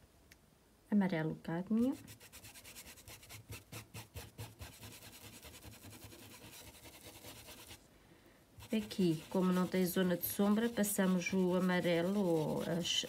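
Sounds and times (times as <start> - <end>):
paintbrush scratching on fabric: 1.9 - 7.8, 8.6 - 13.0.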